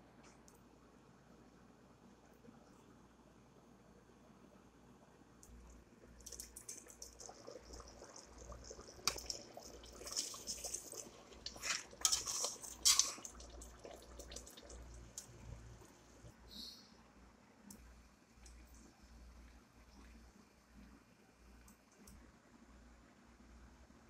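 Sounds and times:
wet sloshing: 6.2 - 15.7
spoon scraping a metal pot: 10.0 - 13.4.

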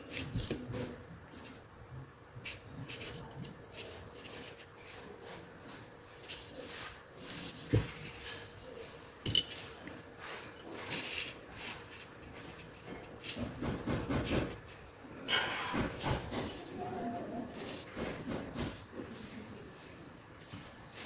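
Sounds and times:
small tools clicking and tapping: 9.2 - 11.4.

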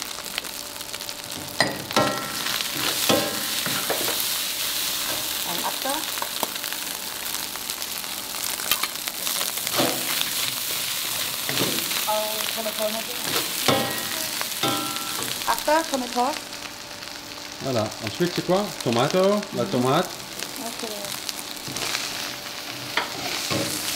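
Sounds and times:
rice sizzling in a wok: 0.0 - 23.9
metal spatula scraping a wok: 22.8 - 23.9.

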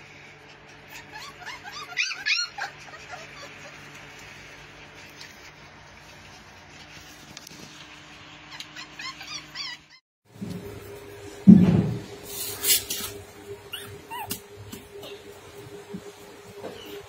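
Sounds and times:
puppies whining and squeaking: 0.3 - 6.5, 7.8 - 10.0, 12.3 - 15.4, 16.1 - 17.0.

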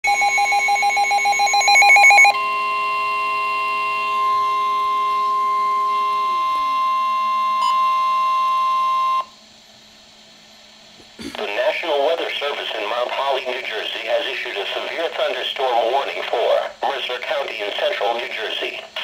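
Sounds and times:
steady warning alarm tone: 0.0 - 9.3
rapid pulsing electronic beeps: 0.1 - 2.4.

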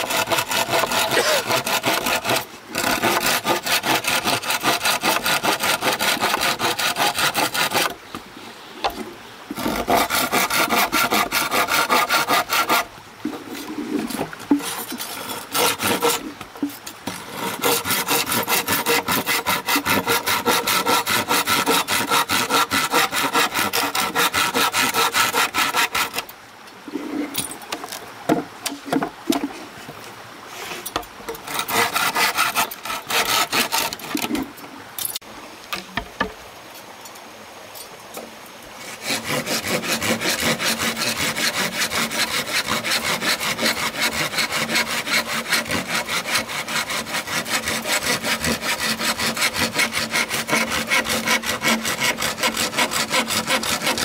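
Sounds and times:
hand saw cutting wood: 0.0 - 8.0, 9.5 - 26.3, 31.3 - 34.5, 38.8 - 54.0
knocks and scrapes: 8.8 - 26.3, 26.9 - 36.4.

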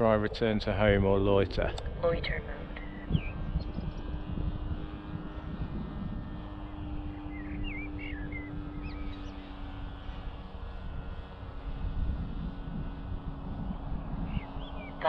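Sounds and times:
distant drone of model aircraft motor: 0.0 - 15.0
wind rumbling on microphone: 0.0 - 15.0
bird chirping: 2.8 - 4.0, 7.2 - 9.5, 14.3 - 15.0.

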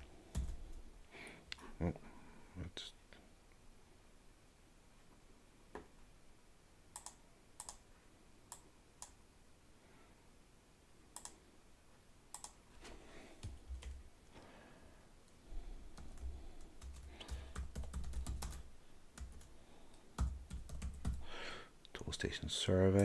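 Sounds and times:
computer keyboard typing: 0.3 - 0.7, 7.0 - 7.8, 11.2 - 11.4, 12.3 - 12.6, 13.4 - 14.0, 15.9 - 19.5, 20.2 - 21.3.

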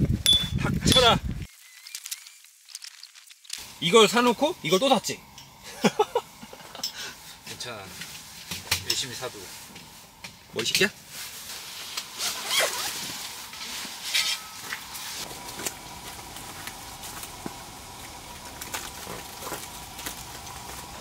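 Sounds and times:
camping gear rustling: 6.2 - 21.0.

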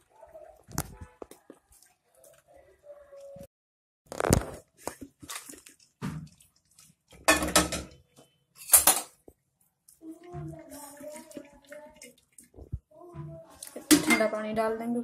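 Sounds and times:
steel pot and utensils clattering: 5.1 - 9.3, 13.6 - 14.6.

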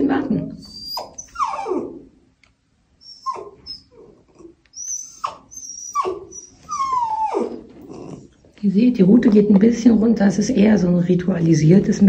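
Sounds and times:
small dog whining: 0.6 - 2.1, 3.0 - 8.3.

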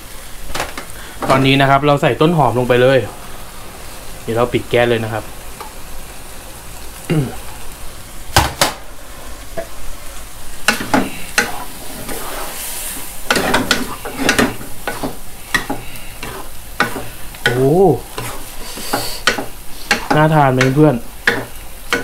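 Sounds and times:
seafood sizzling: 0.0 - 22.0
wooden spatula scraping frying pan: 10.6 - 22.0.

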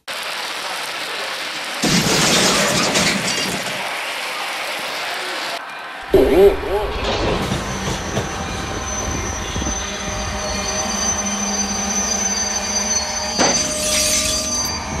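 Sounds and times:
diesel train engines droning: 3.8 - 15.0
train wheel squeal: 6.7 - 15.0.

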